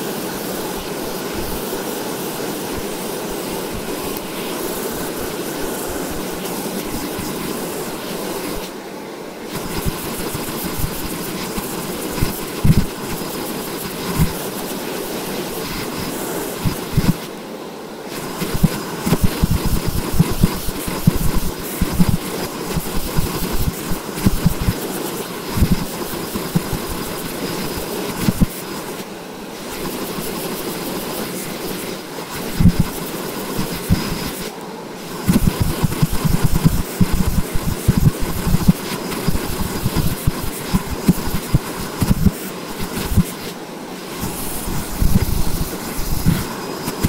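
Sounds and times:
hair dryer blowing: 0.0s - 8.8s, 9.4s - 17.4s, 18.0s - 47.0s
wind buffeting microphone: 44.2s - 47.0s.

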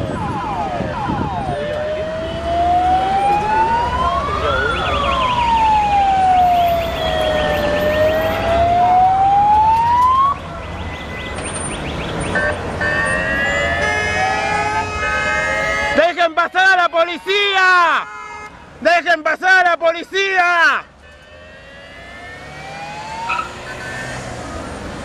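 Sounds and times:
fast pulsing siren tone: 0.0s - 10.4s, 21.5s - 24.7s
police siren wailing: 0.0s - 18.5s, 20.6s - 25.0s.

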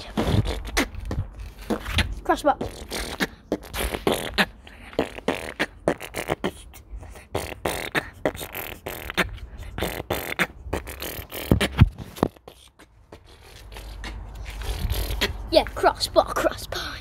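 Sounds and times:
low mouth thumps: 0.0s - 13.3s
child beatboxing: 0.0s - 17.0s.

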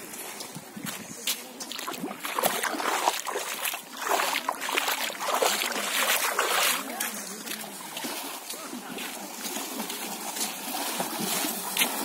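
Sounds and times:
water splashing from wading: 0.0s - 12.0s.

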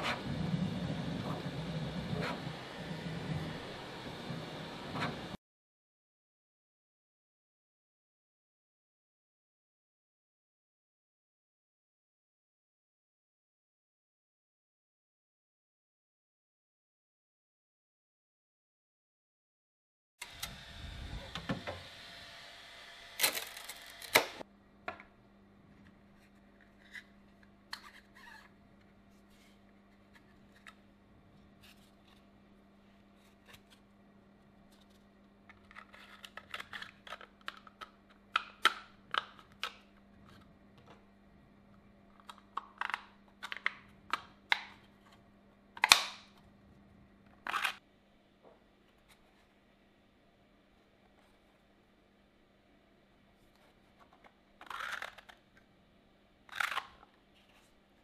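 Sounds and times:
plastic parts clicking and clacking: 35.5s - 39.9s.

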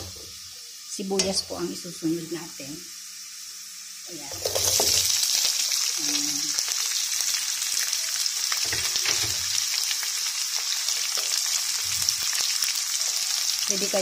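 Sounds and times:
onions sizzling in hot oil: 0.0s - 14.0s.

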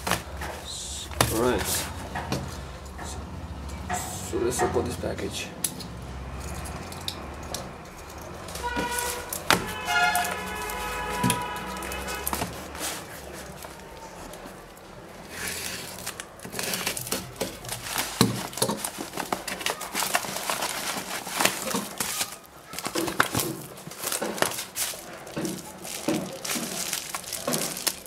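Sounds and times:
plastic mailer and bubble wrap crinkling: 0.0s - 2.8s, 7.9s - 28.0s.

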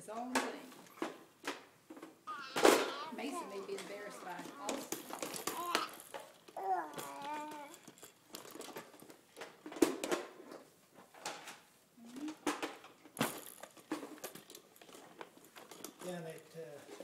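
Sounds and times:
baby vocal squeak: 2.3s - 6.0s, 6.6s - 7.7s.

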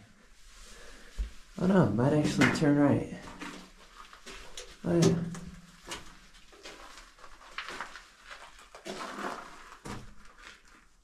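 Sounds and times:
footsteps crunching on gravel: 5.8s - 10.9s.

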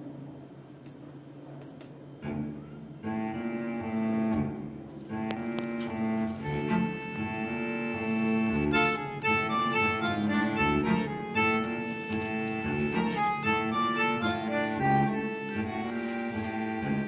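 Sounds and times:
instrumental background music: 3.1s - 17.0s.

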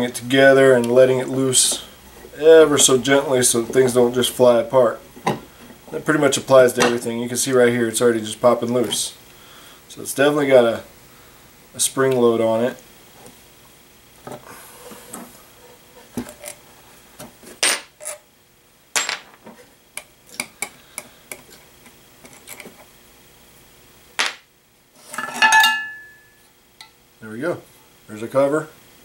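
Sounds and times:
ringing metallic clink: 25.2s - 26.4s.

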